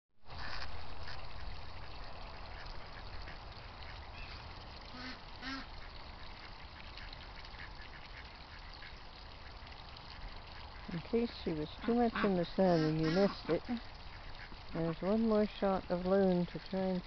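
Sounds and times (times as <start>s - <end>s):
outdoor hiss and low rumble: 0.2s - 17.0s
ducks quacking: 0.4s - 9.6s, 10.5s - 14.9s.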